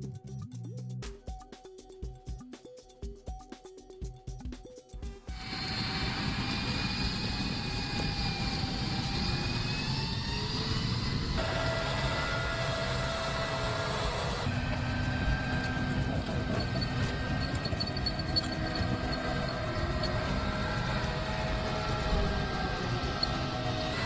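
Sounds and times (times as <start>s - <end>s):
turbine engine whine: 5.3s - 24.0s
tank tracks rumbling: 5.4s - 24.0s.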